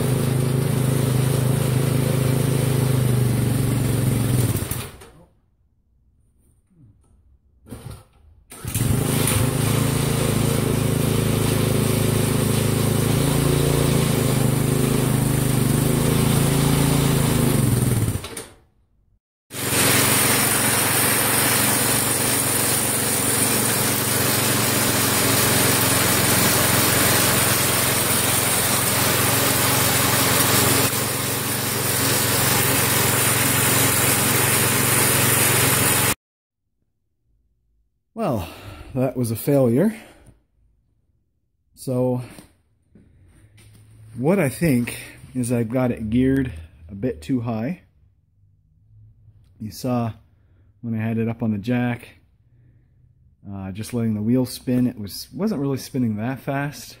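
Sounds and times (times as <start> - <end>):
small engine running: 0.0 - 4.9, 8.6 - 18.5, 19.5 - 36.2.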